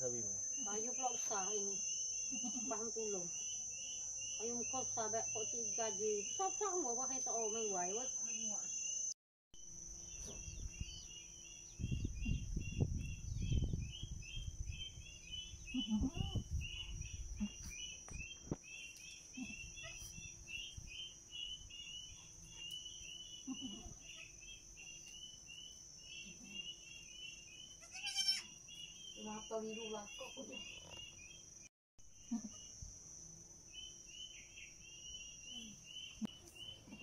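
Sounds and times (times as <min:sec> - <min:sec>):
insects chirping: 0:00.0 - 0:37.0
goat bleating: 0:27.8 - 0:28.5.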